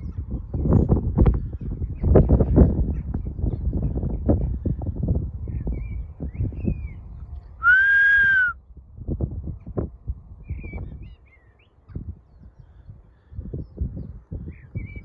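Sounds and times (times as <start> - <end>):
dog whistle blast: 7.6 - 8.6.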